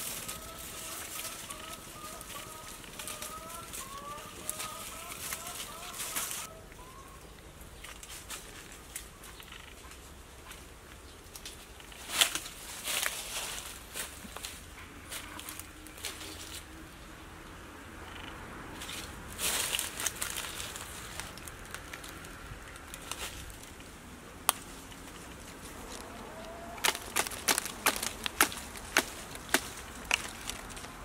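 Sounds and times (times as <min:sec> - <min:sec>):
leaves rustling: 0:00.0 - 0:17.4, 0:18.0 - 0:31.0
branches snapping: 0:11.3 - 0:14.6, 0:18.9 - 0:31.0.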